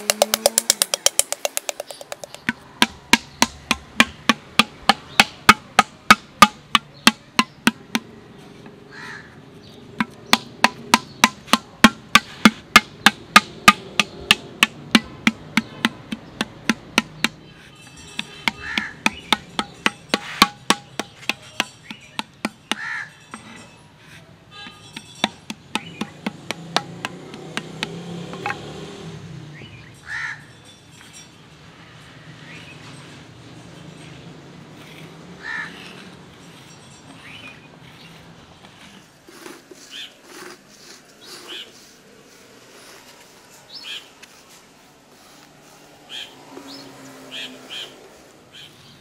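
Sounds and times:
paddle knocking clay pot: 0.0 - 8.2, 10.0 - 17.4, 18.1 - 23.6, 24.6 - 28.8.

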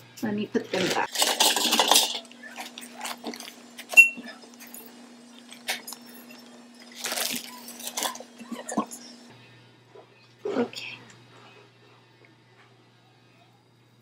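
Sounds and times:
plastic bag and soil rustling: 6.9 - 8.3.

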